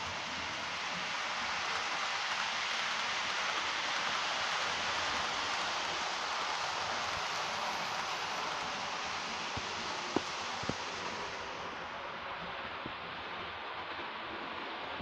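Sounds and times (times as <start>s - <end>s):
model train running hiss: 0.0s - 15.0s.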